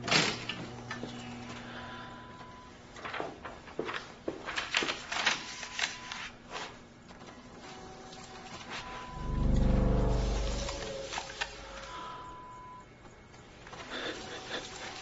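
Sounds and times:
deep low tone: 0:09.0 - 0:12.6.

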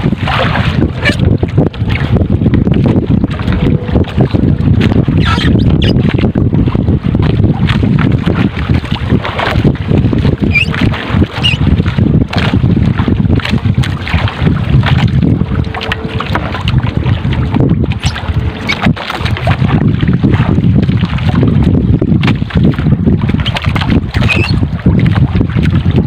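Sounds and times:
water and wind against hull: 0:00.0 - 0:26.0.

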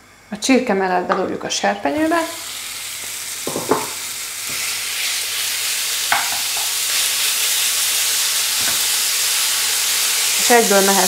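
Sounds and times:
chicken sizzling in a frying pan: 0:01.6 - 0:11.0
wooden spatula knocking on pan: 0:03.5 - 0:04.0, 0:06.1 - 0:06.7.

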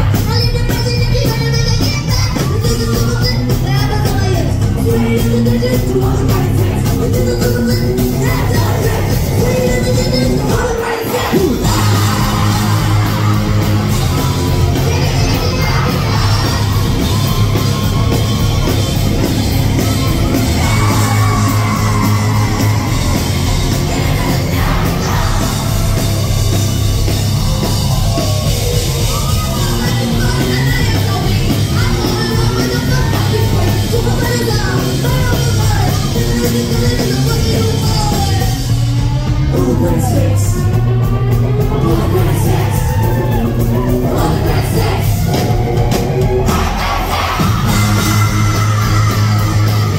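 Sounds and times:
bass guitar: 0:00.0 - 0:49.9
drums: 0:00.0 - 0:49.9
electric guitar: 0:00.0 - 0:49.9
woman singing and yelling: 0:00.1 - 0:17.4, 0:20.2 - 0:23.2, 0:23.9 - 0:26.0, 0:28.1 - 0:38.6, 0:46.4 - 0:49.9.

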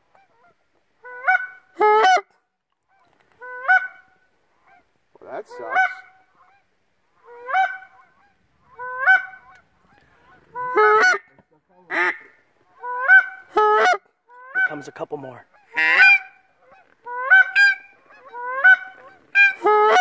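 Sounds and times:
goose honks: 0:05.4 - 0:20.0.

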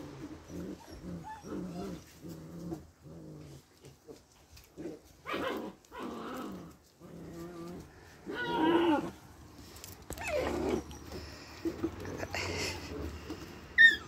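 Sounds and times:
puppies whining: 0:00.1 - 0:02.9, 0:07.3 - 0:09.3, 0:10.1 - 0:14.0
puppies yelping: 0:00.3 - 0:02.3, 0:10.1 - 0:14.0.

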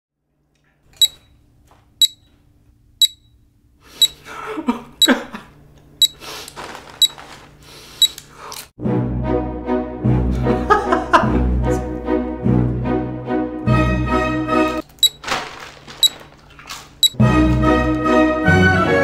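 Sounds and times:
short high timer beeps: 0:01.0 - 0:01.3, 0:02.0 - 0:02.3, 0:03.0 - 0:03.4
chip bag crinkling: 0:06.2 - 0:07.7, 0:14.8 - 0:17.0.

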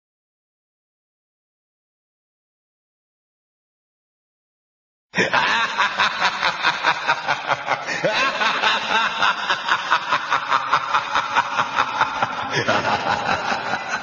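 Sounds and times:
cackling laughter: 0:05.2 - 0:14.0.

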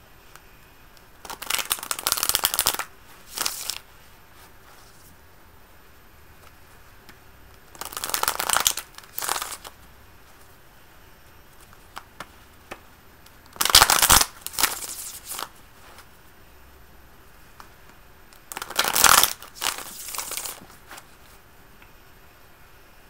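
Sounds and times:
cards being shuffled: 0:01.2 - 0:05.0, 0:07.7 - 0:09.8, 0:13.5 - 0:16.1, 0:18.4 - 0:21.4.

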